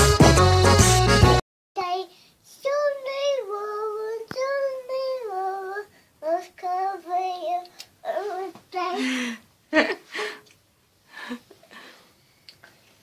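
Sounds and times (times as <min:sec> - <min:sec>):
girl singing: 0:01.8 - 0:09.4.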